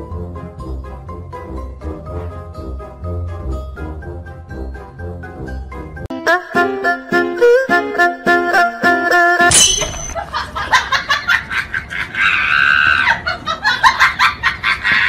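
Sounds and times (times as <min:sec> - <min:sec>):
high-pitched cackling laughter: 0:10.2 - 0:15.0.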